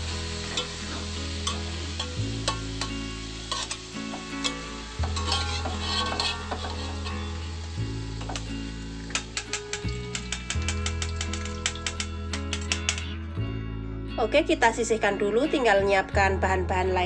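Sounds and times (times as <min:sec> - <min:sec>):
oil sizzling: 0:00.0 - 0:13.3
background music: 0:00.0 - 0:17.0
metal utensils scraping a wok: 0:00.1 - 0:13.2.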